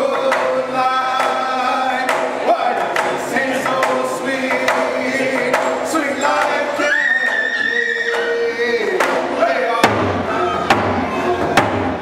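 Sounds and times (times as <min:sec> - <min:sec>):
men singing together: 0:00.0 - 0:10.7
frame hand drum beats: 0:08.1 - 0:12.0.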